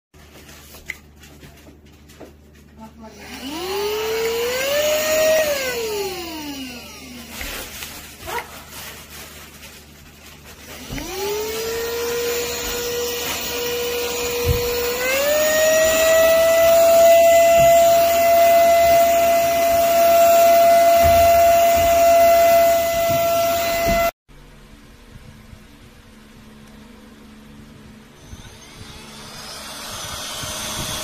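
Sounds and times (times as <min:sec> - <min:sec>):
vacuum-blower motor whine: 0:03.0 - 0:08.2, 0:10.5 - 0:24.2, 0:26.5 - 0:31.0.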